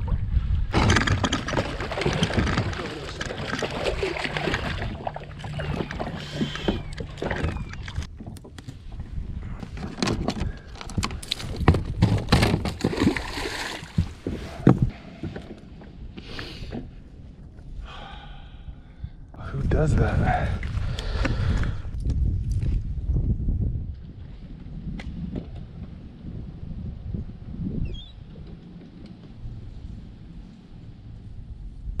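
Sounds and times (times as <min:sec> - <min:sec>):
water splashing and sloshing: 0:00.0 - 0:17.7
fish flopping on deck: 0:10.4 - 0:15.4.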